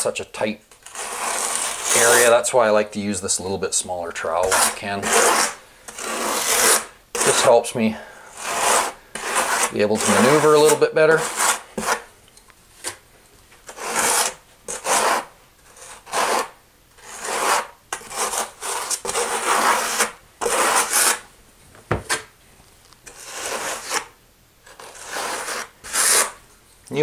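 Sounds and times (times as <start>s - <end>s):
trowel scraping mortar: 0.7s - 2.4s, 4.2s - 7.6s, 8.3s - 12.1s, 13.6s - 21.3s, 23.0s - 26.4s.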